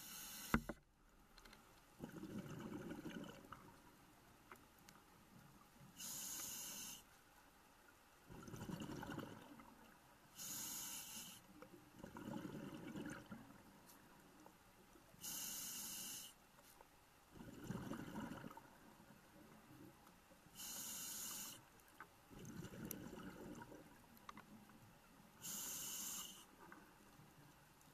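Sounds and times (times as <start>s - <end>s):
regulator inhale hiss: 0.0s - 0.7s, 6.0s - 7.1s, 10.3s - 11.5s, 15.2s - 16.4s, 20.5s - 21.7s, 25.4s - 26.6s.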